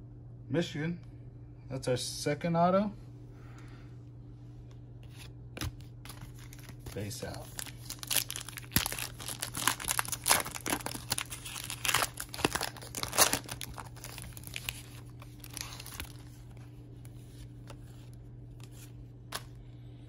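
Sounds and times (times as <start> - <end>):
cards rustling: 5.0 - 19.6
foil wrapper tearing and crinkling: 5.6 - 16.6.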